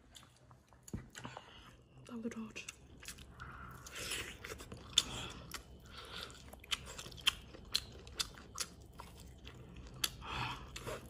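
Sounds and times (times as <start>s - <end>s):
chewing ribs on the bone: 2.6s - 11.0s.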